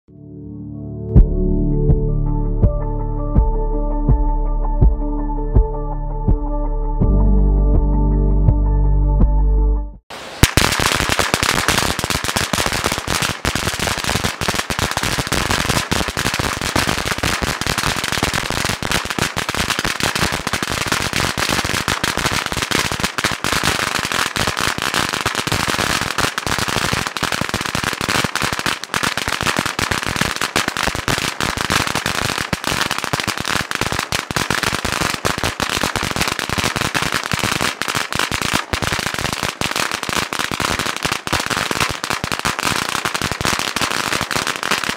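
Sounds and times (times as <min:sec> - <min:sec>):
firecrackers rapid bangs: 0:10.1 - 0:44.9.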